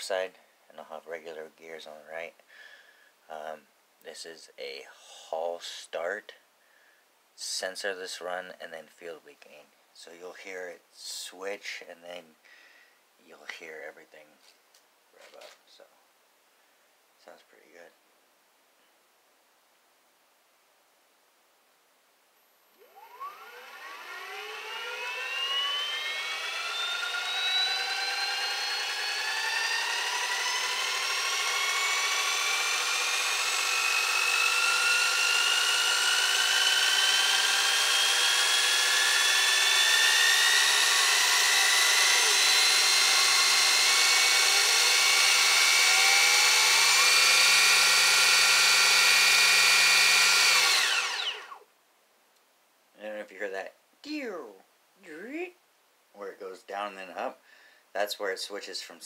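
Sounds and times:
electric motor whine: 0:22.4 - 0:51.6.

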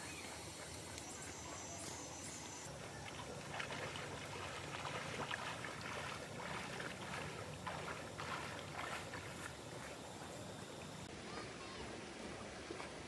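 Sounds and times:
stream flowing: 0:00.0 - 0:13.0
footsteps wading through water: 0:02.7 - 0:13.0.

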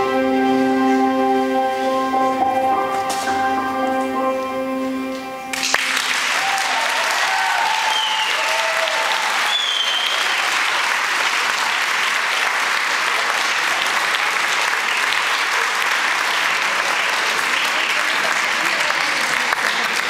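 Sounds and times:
held music chord: 0:00.0 - 0:06.1
audience applauding: 0:05.5 - 0:20.0
audience cheering: 0:05.6 - 0:18.7.

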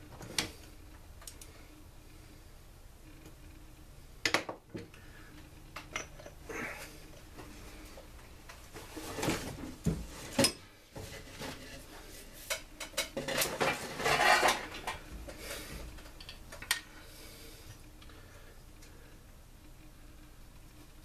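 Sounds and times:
metal parts and tools clattering: 0:12.8 - 0:15.0.

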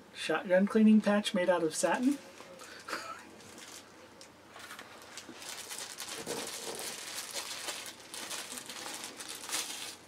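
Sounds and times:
plastic wrapping crinkling: 0:02.0 - 0:03.9, 0:04.5 - 0:10.0.

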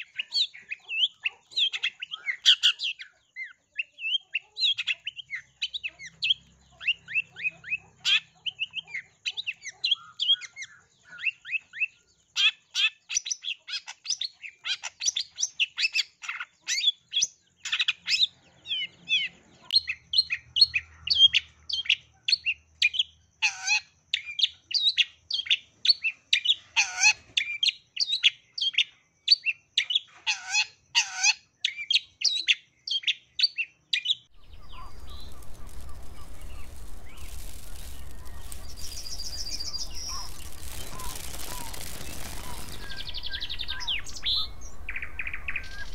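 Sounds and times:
bird singing chirps and whistles: 0:34.4 - 0:45.9.

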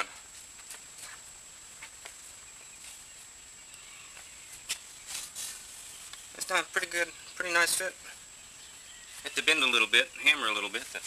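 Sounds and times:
background hiss: 0:00.0 - 0:11.0
short rustle: 0:04.5 - 0:06.4.

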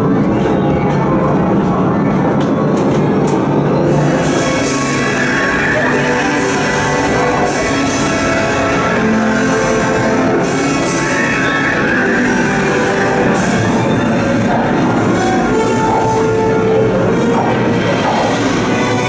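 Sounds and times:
dramatic show music: 0:00.0 - 0:19.0.

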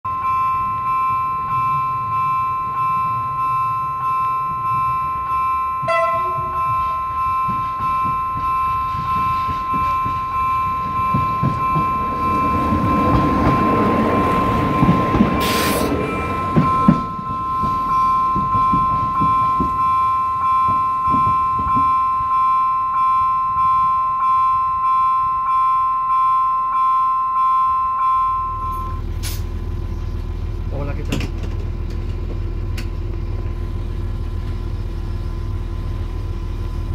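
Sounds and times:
level crossing bell ringing: 0:00.0 - 0:29.1
train rumbling past: 0:00.1 - 0:36.9.

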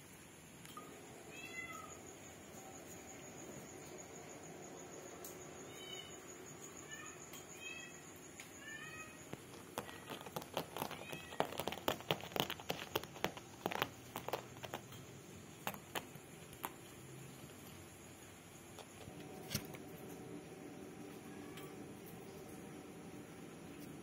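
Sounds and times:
kitten clawing at rug: 0:09.4 - 0:17.7, 0:18.8 - 0:19.7.

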